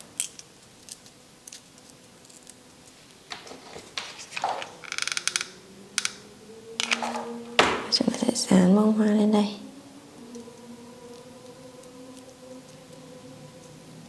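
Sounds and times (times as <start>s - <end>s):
paper rustling: 3.3s - 4.8s.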